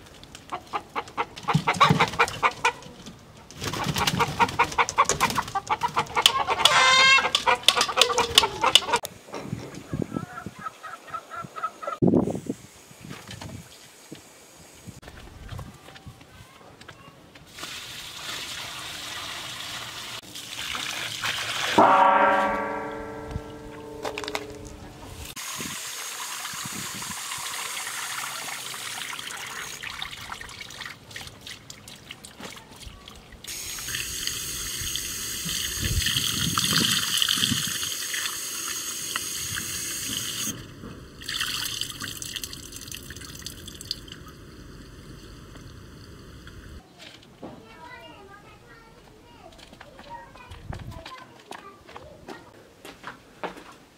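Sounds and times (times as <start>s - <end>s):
water running from a tap: 25.4s - 31.0s, 33.5s - 40.5s, 41.2s - 44.4s.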